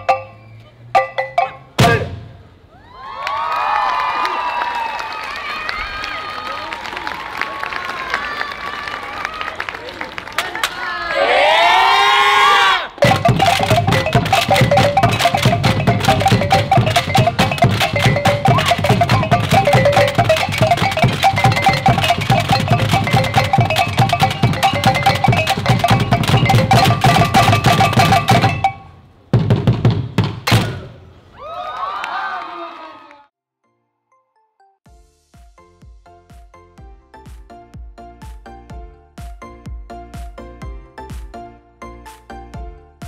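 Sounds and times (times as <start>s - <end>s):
fast drum percussion music: 13.0s - 30.6s.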